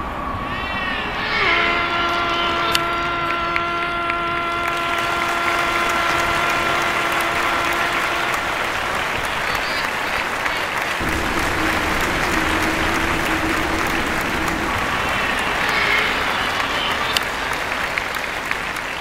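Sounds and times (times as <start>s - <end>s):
spectators clapping: 2.7s - 19.0s.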